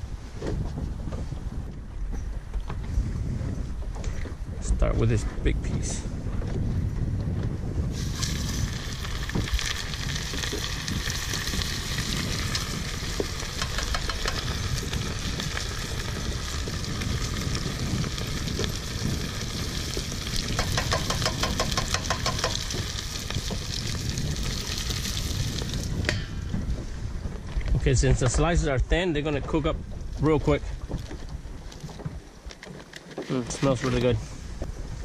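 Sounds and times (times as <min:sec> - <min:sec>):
fish frying in hot oil: 0:07.9 - 0:26.1.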